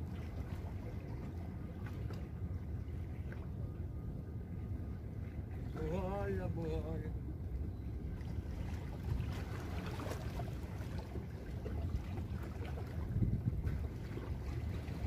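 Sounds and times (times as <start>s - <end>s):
wind on microphone: 8.5s - 15.0s.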